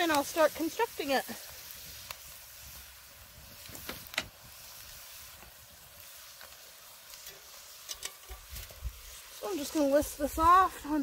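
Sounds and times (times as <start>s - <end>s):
faint crackles: 0.0s - 11.0s
sauce sizzling in a pot: 0.0s - 11.0s.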